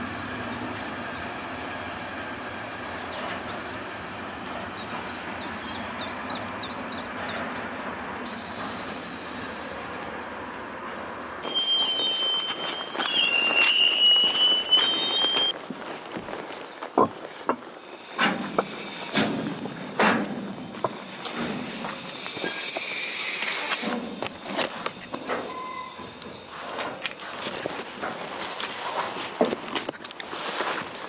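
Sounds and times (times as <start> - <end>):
freight train rumbling on rails: 0.0 - 16.9, 17.5 - 31.0
high-pitched wheel squeal: 8.2 - 10.6, 11.4 - 15.6, 25.4 - 27.0
wavering wheel squeals: 8.2 - 10.6, 11.4 - 15.6, 20.7 - 27.1.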